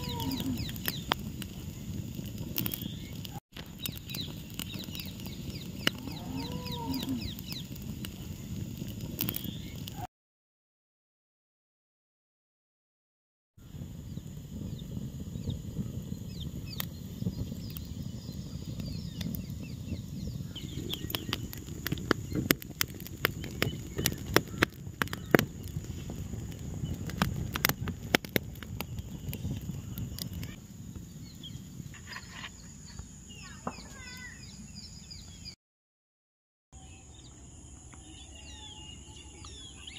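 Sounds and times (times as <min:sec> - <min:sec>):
birds chirping: 0:00.0 - 0:10.1, 0:13.6 - 0:35.6, 0:36.8 - 0:39.9
low rumble of flames: 0:00.0 - 0:10.1, 0:13.6 - 0:35.6
twig fire crackling and popping: 0:00.0 - 0:10.1, 0:13.6 - 0:34.5.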